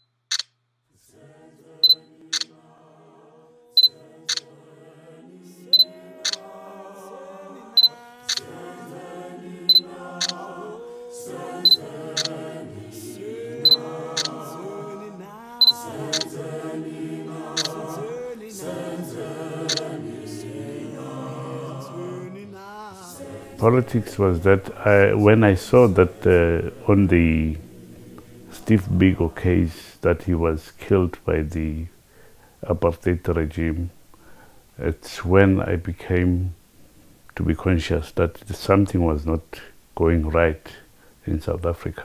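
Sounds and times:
unaccompanied choir singing: 0:00.9 - 0:31.7.

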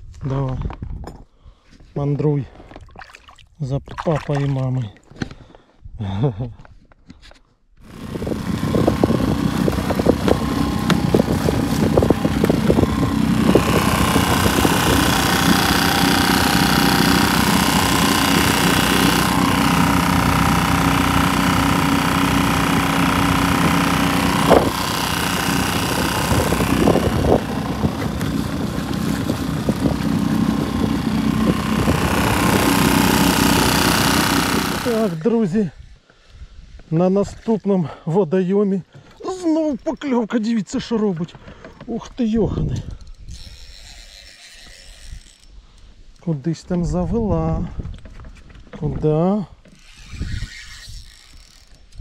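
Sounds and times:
wind noise on microphone: 0:00.0 - 0:01.3, 0:07.8 - 0:19.4, 0:24.4 - 0:34.0, 0:35.7 - 0:37.4, 0:42.4 - 0:43.9, 0:46.7 - 0:49.2, 0:49.8 - 0:52.0
vehicle engine running: 0:07.8 - 0:35.2.

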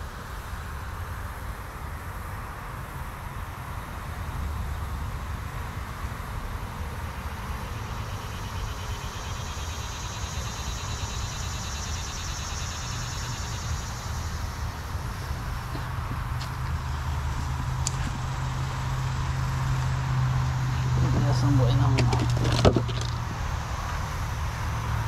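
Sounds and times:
insect buzzing: 0:07.3 - 0:25.0
steady low rumble: 0:13.4 - 0:25.0.

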